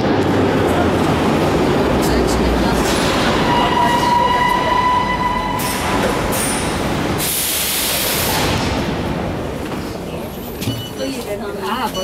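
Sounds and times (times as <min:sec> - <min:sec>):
train brake squeal: 0:03.4 - 0:06.7
air hissing: 0:07.2 - 0:08.6.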